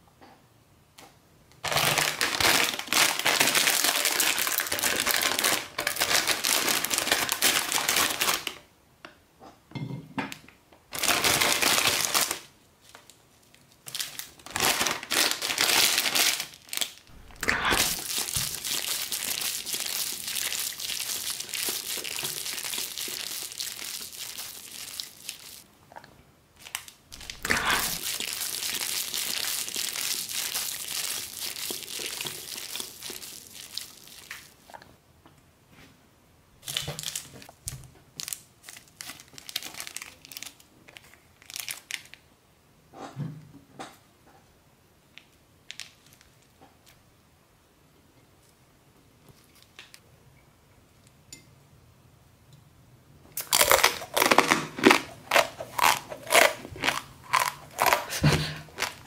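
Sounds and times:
plastic packet crinkling: 1.6s - 8.6s, 10.9s - 25.7s, 26.6s - 34.6s, 36.6s - 42.2s, 53.4s - 59.0s.

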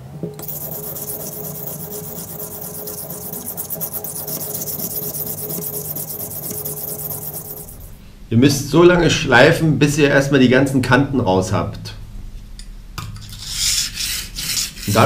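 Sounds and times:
knife scraping on whetstone: 0.4s - 8.0s, 13.3s - 15.0s.

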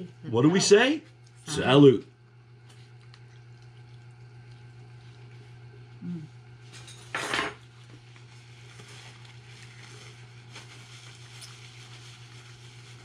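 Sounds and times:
steady low hum: 0.0s - 13.0s
faint chewing: 2.5s - 6.6s.

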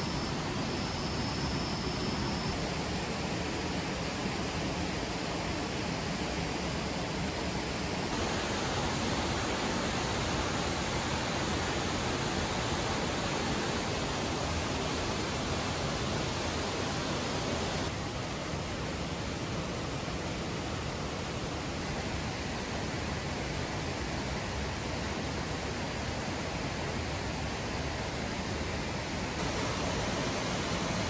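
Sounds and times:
waterfall rushing: 8.0s - 18.0s, 29.4s - 31.0s.

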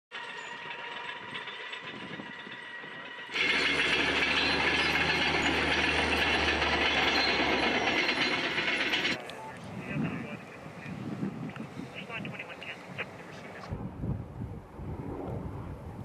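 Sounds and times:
helicopter rotor and engine: 0.1s - 10.9s, 11.9s - 13.8s.

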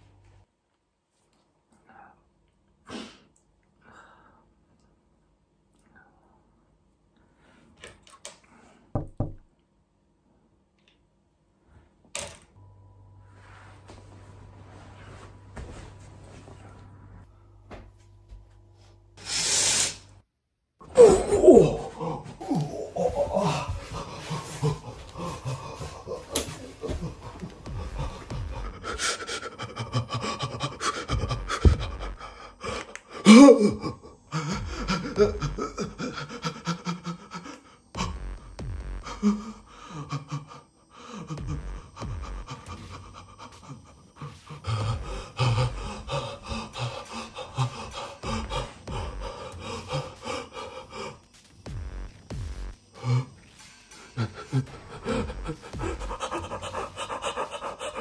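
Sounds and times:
low steady hum: 3.4s - 19.2s
man gasping: 21.0s - 38.2s, 39.0s - 51.3s, 53.0s - 58.0s
man panting: 21.0s - 58.0s.

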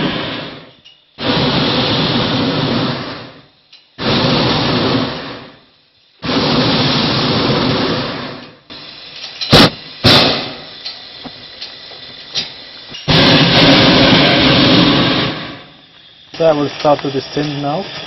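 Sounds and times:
propane burner roaring: 0.0s - 18.0s.

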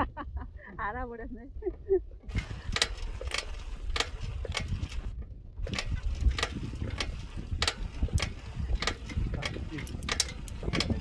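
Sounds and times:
wind rumbling on microphone: 0.0s - 11.0s
bicycle clicks and rattles: 2.3s - 11.0s.

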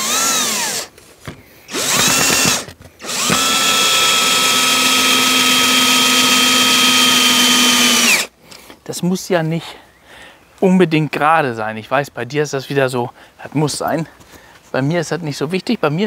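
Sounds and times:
drill driving screws into wood: 0.0s - 1.0s, 1.7s - 8.3s.

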